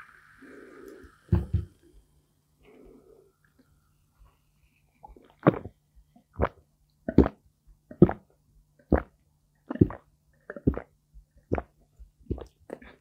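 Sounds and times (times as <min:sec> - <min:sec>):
person gulping a drink: 0:05.0 - 0:13.0.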